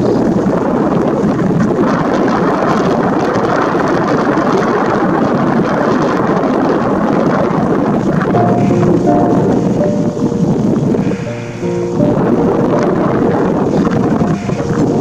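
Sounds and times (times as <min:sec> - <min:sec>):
rippling river water: 0:00.0 - 0:15.0
wind: 0:00.0 - 0:15.0.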